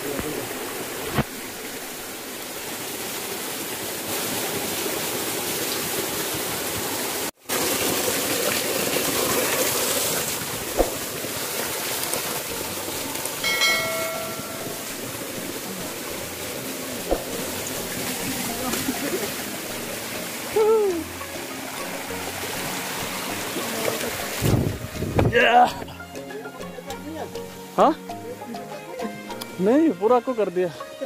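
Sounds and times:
stream cascading over rocks: 0:00.0 - 0:28.1.

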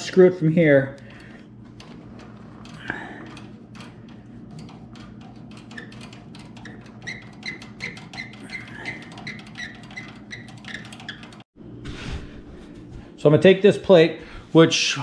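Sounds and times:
hands unscrewing threaded rod: 0:01.0 - 0:11.4.

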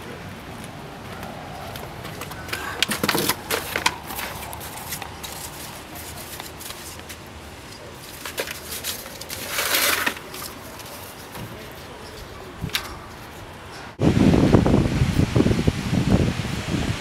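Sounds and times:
paper cutouts rustling: 0:02.0 - 0:13.7.

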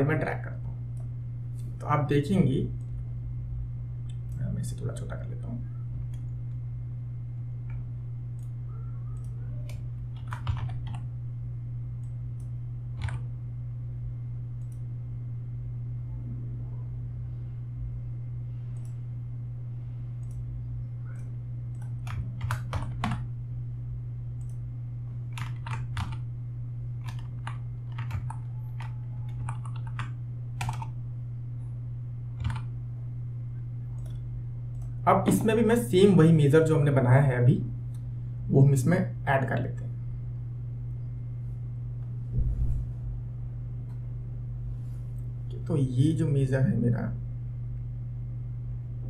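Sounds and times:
low hum: 0:00.0 - 0:49.0
keyboard keystrokes: 0:09.1 - 0:11.0, 0:12.4 - 0:13.2, 0:21.7 - 0:23.3, 0:25.3 - 0:26.2, 0:27.0 - 0:30.9, 0:32.4 - 0:32.7.

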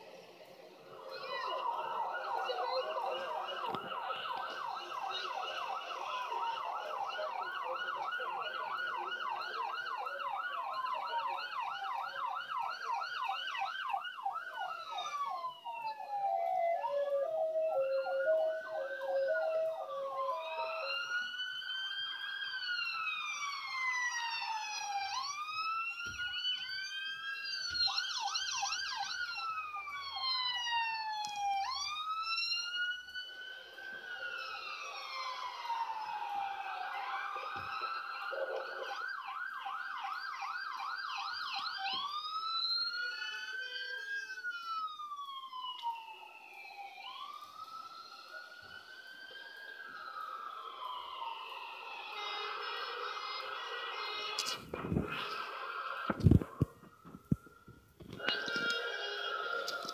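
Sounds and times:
siren wail: 0:00.0 - 0:59.9
siren yelp: 0:00.0 - 0:59.9
two-note hi-lo siren: 0:14.4 - 0:26.9, 0:44.6 - 0:54.3.

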